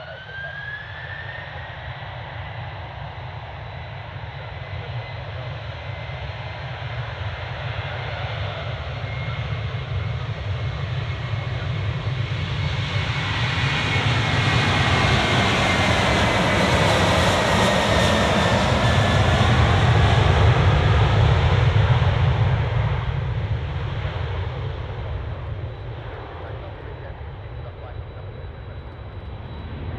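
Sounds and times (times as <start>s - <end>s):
jet engines roaring on takeoff: 0.0s - 29.9s.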